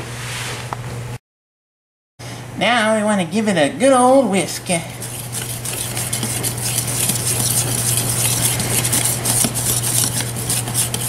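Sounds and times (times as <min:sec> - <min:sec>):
whisk beating batter in a bowl: 0:04.6 - 0:11.0.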